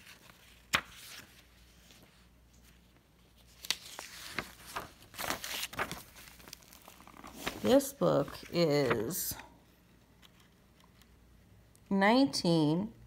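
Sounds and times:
book pages rustling: 0.0s - 9.4s, 10.2s - 11.2s.

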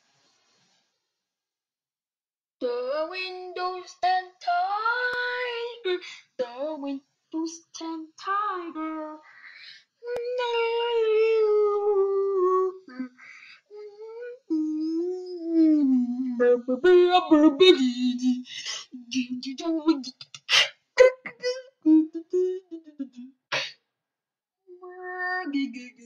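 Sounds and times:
person humming held notes: 10.1s - 17.1s, 21.4s - 23.7s
hissing voice: 10.4s - 20.7s, 21.3s - 23.7s
short vocal sounds: 18.2s - 23.8s
mouth clicks: 20.1s - 20.7s, 23.5s - 23.8s.

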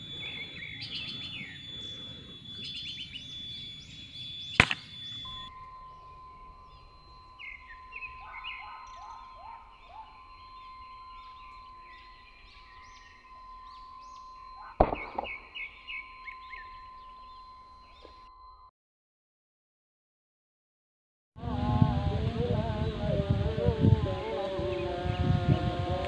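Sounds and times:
short falling chirps: 0.0s - 18.3s
steady thin high tone: 0.0s - 18.7s
air rifle shot: 4.6s - 4.9s, 14.8s - 15.7s.

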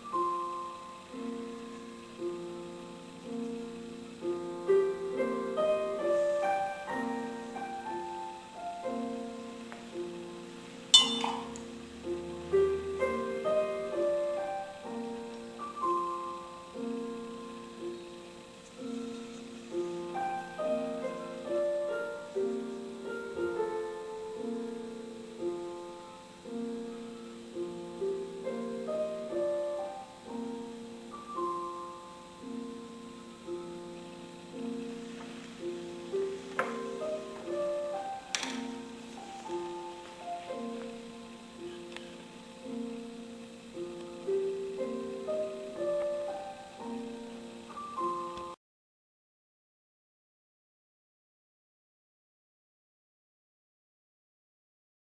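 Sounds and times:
gentle piano music: 0.0s - 48.6s.

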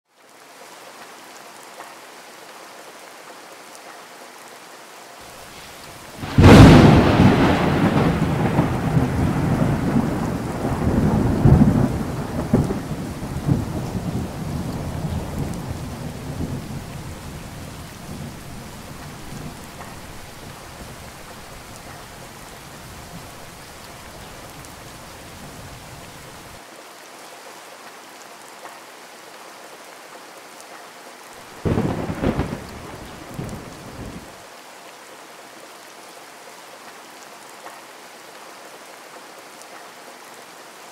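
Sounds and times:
steady rain falling: 0.1s - 40.9s
thunderclap and rolling rumble: 6.2s - 23.6s, 31.6s - 34.3s.

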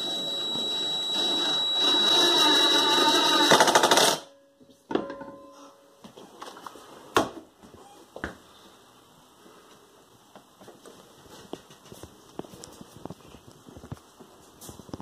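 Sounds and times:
cordless driver motor whine: 0.0s - 3.6s.

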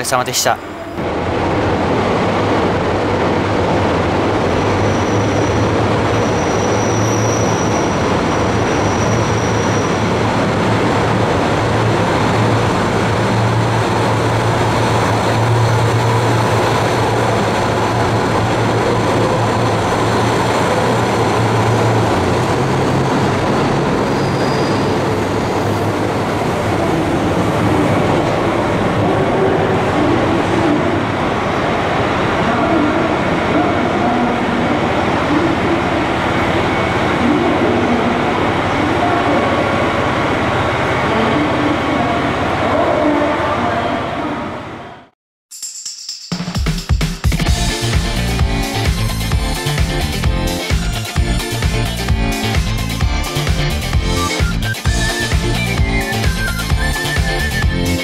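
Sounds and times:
diesel train engine drone: 0.0s - 45.1s, 47.4s - 58.0s
high wheel squeal: 4.5s - 10.2s, 18.6s - 26.0s, 54.1s - 58.0s.

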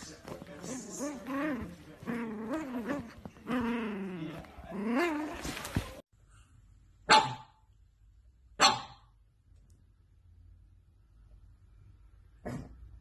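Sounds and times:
puppy growling and whining: 1.0s - 5.6s
dog barking: 7.1s - 7.6s, 8.6s - 9.1s.

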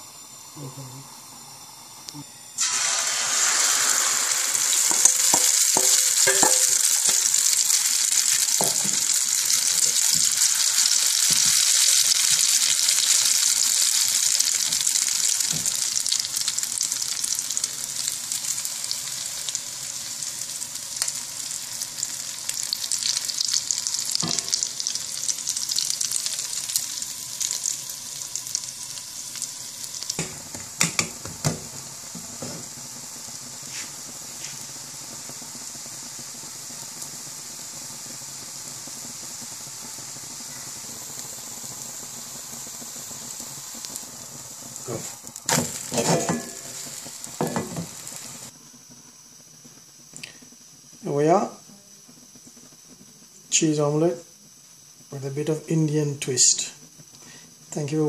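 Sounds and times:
egg sizzling in frying pan: 0.0s - 58.0s
metal spatula scraping pan: 45.9s - 46.6s.

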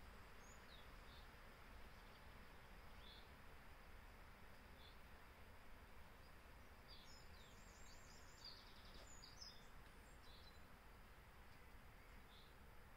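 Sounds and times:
songbird twittering: 0.4s - 3.3s, 4.8s - 5.0s, 6.2s - 10.7s, 11.6s - 12.6s.

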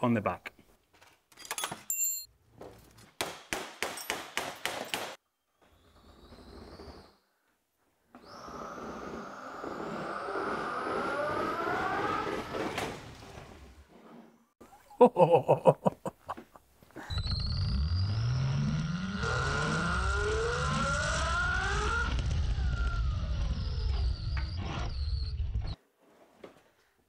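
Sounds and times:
electric motor whine: 8.2s - 13.0s, 17.2s - 25.4s.

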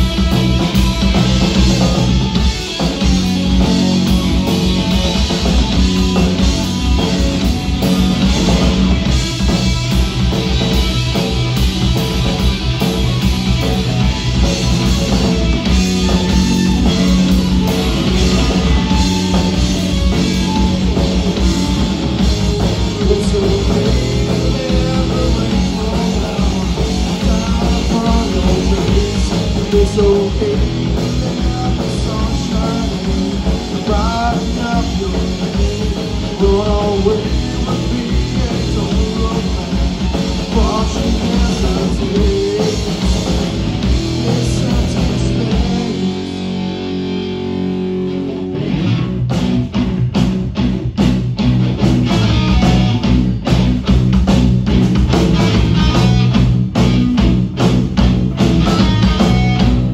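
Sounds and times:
bass guitar: 0.0s - 59.9s
drum kit: 0.0s - 59.9s
electric guitar: 0.0s - 59.9s
man singing: 1.4s - 2.5s, 22.9s - 43.4s, 44.0s - 46.5s.

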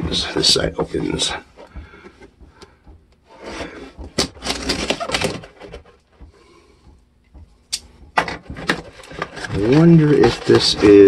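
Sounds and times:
cardboard scraping and rustling: 3.3s - 6.0s, 8.2s - 11.0s.

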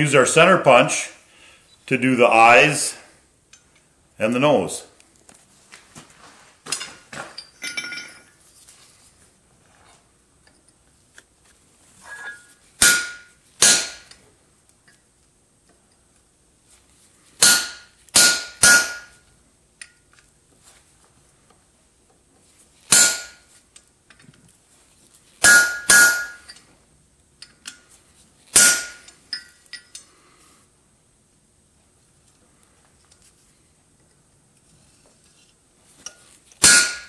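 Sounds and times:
hammer striking punch on iron: 12.8s - 14.1s, 17.4s - 19.1s, 22.9s - 23.4s, 25.4s - 26.4s, 28.6s - 29.0s, 36.6s - 37.0s.

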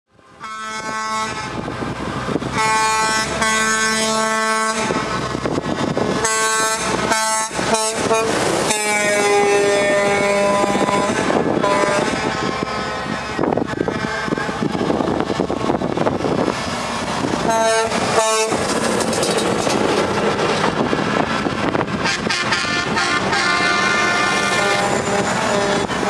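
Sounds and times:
truck engine and road noise: 0.1s - 26.0s
truck air horns: 0.4s - 1.6s, 2.5s - 5.2s, 6.1s - 14.8s, 17.5s - 18.6s, 22.0s - 26.0s.

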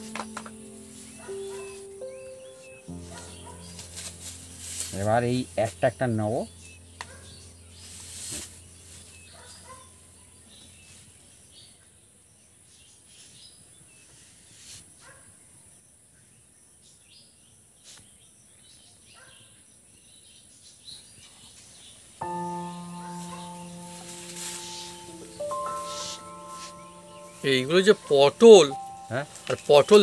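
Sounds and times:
steady high-pitched tone: 0.0s - 10.3s, 22.2s - 30.0s.

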